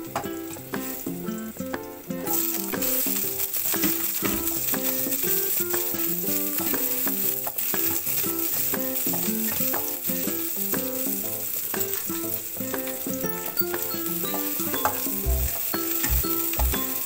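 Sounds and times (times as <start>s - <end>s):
onions sizzling in oil: 0.0s - 17.0s
spatula stirring in a wok: 2.3s - 17.0s
background music quick melody: 10.2s - 17.0s.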